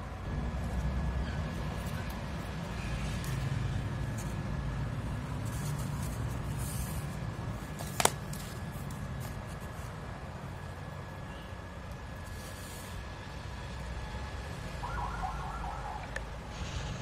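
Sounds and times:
low background hum: 0.0s - 17.0s
phone and cardboard handled: 5.2s - 10.0s.

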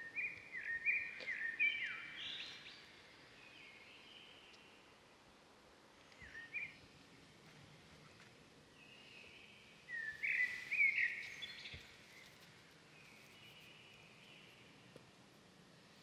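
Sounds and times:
faint background noise: 0.0s - 16.0s
birds chirping: 8.8s - 12.4s.

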